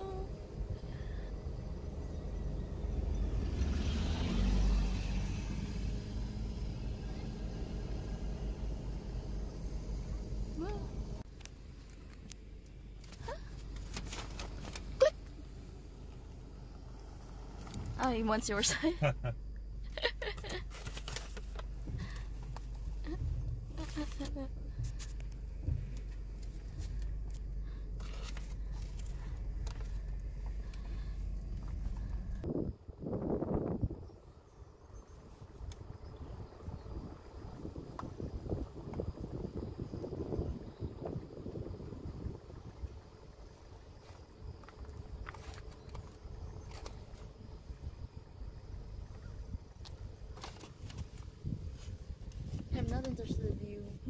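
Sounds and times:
car engine and road noise: 0.0 - 54.0.

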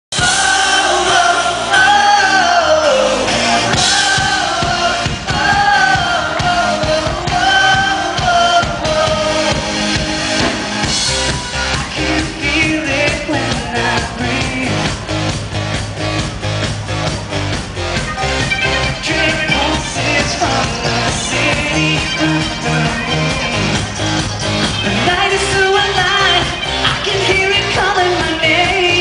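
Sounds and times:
man singing: 0.1 - 10.2, 11.7 - 15.1, 18.6 - 29.0
live pop-rock band: 0.1 - 29.0
drum beat: 3.4 - 29.0.

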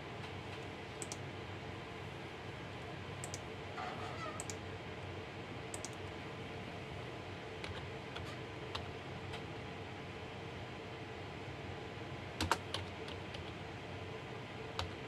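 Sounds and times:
steady background hum: 0.0 - 15.0
mouse clicks: 1.0 - 1.2, 3.2 - 3.4, 4.4 - 4.6, 5.7 - 6.0.

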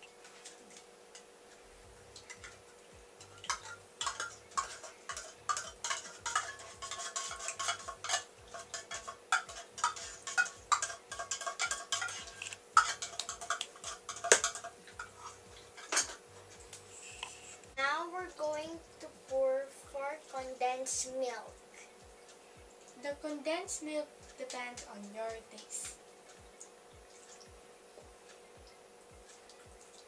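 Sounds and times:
spatula stirring in glass bowl: 2.2 - 17.8
utensils clinking against glass: 3.2 - 16.2.

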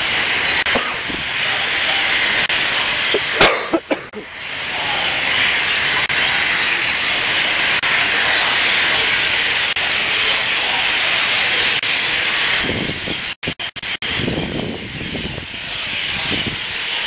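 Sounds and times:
heavy rain and running water: 0.0 - 17.0.

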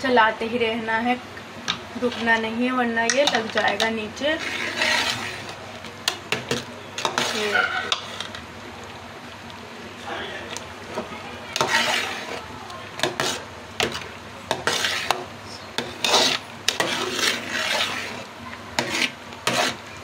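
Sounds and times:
ladle scraping and knocking pot: 3.1 - 8.4, 11.6 - 12.4, 13.0 - 19.8.

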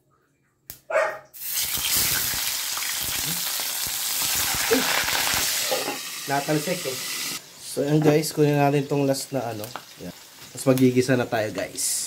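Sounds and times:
fish sizzling in hot oil: 1.4 - 12.0.

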